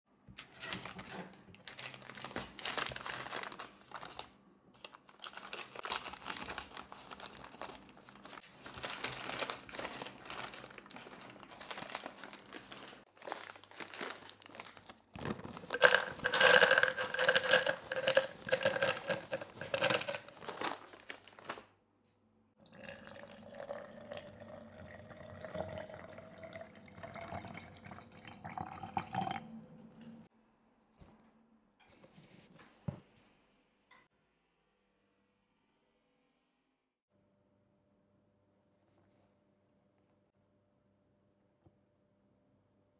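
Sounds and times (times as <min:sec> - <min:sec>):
packet crinkling and rustling: 0:00.6 - 0:21.7
liquid pouring into jar: 0:15.5 - 0:20.2, 0:22.6 - 0:29.6
nuts clattering into glass jar: 0:15.6 - 0:20.3.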